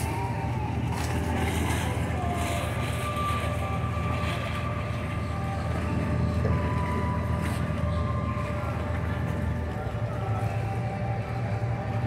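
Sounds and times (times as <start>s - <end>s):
faint wavering thin tone: 0.0s - 12.0s
low engine hum: 0.0s - 12.0s.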